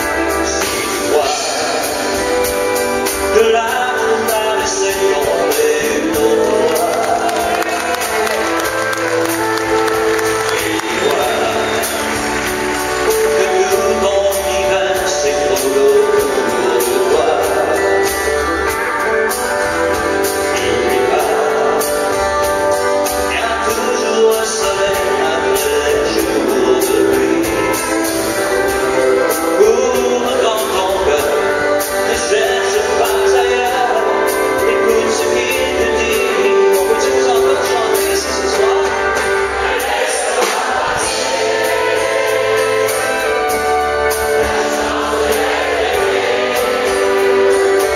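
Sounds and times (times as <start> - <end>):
drums keeping a steady beat: 0.0 - 47.9
man singing: 0.0 - 47.9.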